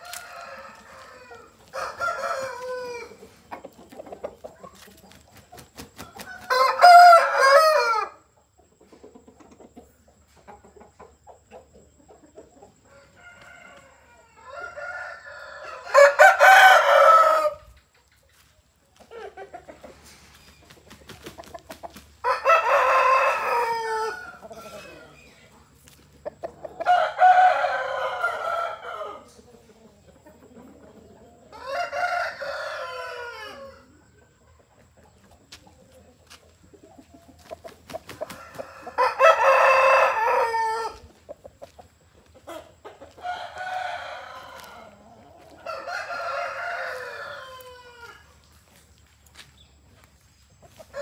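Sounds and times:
roosters crowing: 0.0 - 3.4, 5.9 - 8.3, 12.8 - 17.8, 22.1 - 25.5, 26.4 - 29.5, 31.4 - 34.0, 37.9 - 41.3, 42.4 - 48.4, 50.8 - 51.0.

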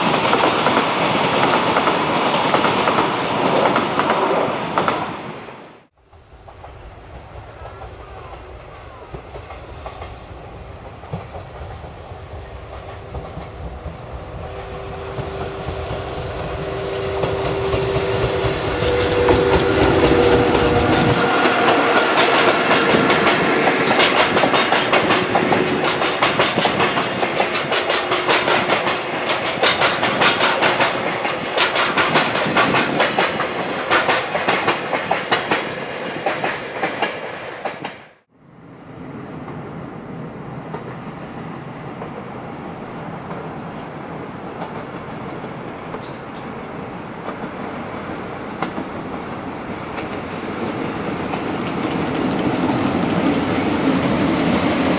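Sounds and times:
electric locomotive hum: 6.0 - 54.9
wagons clattering over rail joints: 18.3 - 35.6.

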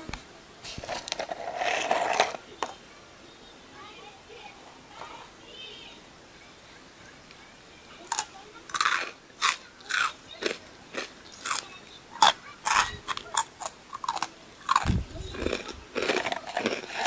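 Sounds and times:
crunchy snack chewing: 8.1 - 17.0
dull low thump: 14.9 - 15.3.

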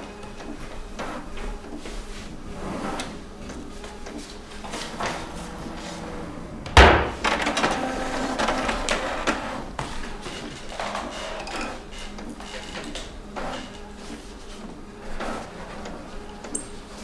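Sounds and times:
cabinet door banging shut: 6.6 - 7.4.

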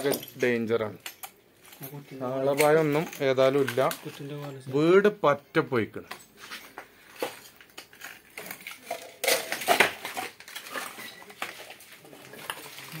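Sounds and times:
debris clattering and crunching: 6.4 - 13.0.

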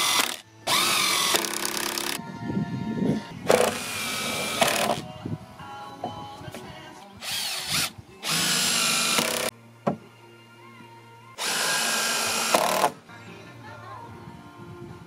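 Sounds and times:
cordless drill driving screws: 0.0 - 2.2, 3.5 - 5.0, 7.2 - 9.5, 11.4 - 13.0.

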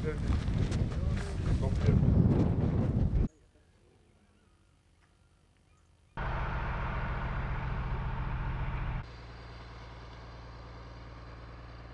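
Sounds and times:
motor engine running: 6.2 - 11.9.

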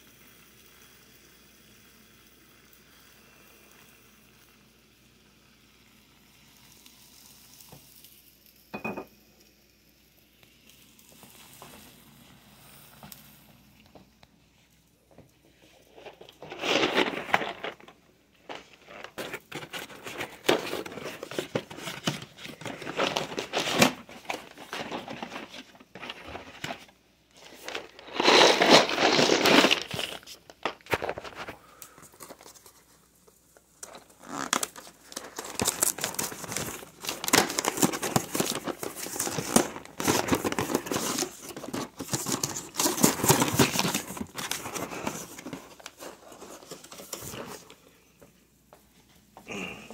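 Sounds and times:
paper bags crinkling: 15.6 - 48.0.

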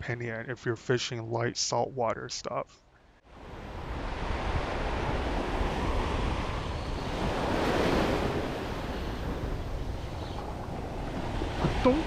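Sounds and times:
surf washing onto beach: 3.3 - 12.0
wind buffeting microphone: 3.3 - 12.0.

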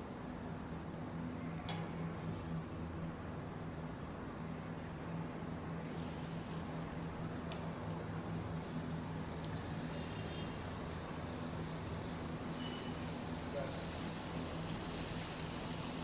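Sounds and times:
chicken sizzling on a griddle: 5.8 - 16.0.

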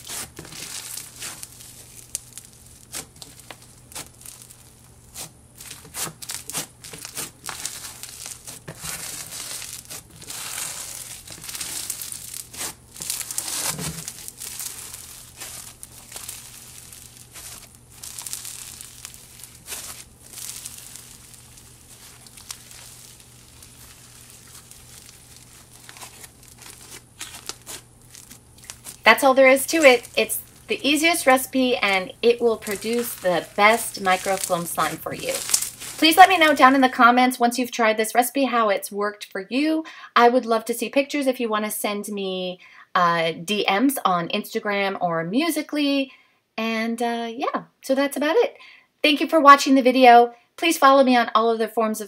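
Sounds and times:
crunchy slime crackling: 0.0 - 37.0.

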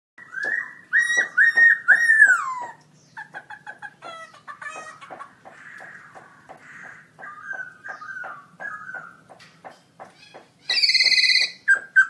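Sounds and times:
bird singing whistles: 0.2 - 2.7, 10.7 - 12.0.

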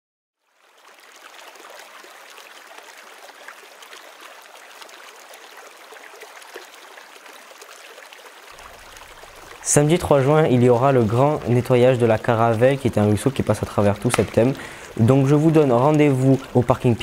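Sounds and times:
stream babbling over stones: 0.4 - 17.0.

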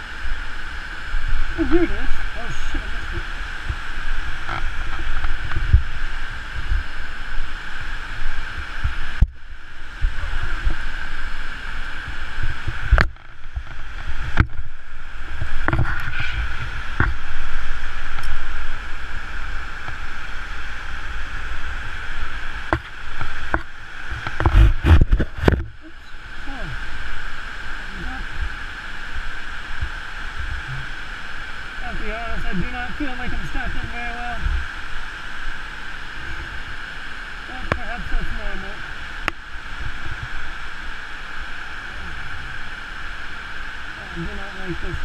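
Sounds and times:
wind buffeting microphone: 1.0 - 26.8.

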